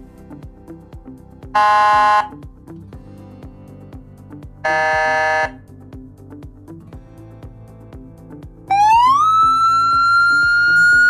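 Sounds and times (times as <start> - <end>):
background music with steady beat: 0.0 - 11.0
electronic air-horn blasts: 1.5 - 2.4, 4.6 - 5.6.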